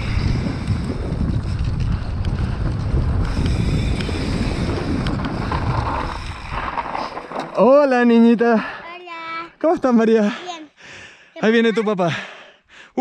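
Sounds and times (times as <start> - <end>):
bike clicks and rattles: 0.0 - 8.0
wind buffeting microphone: 0.0 - 8.6.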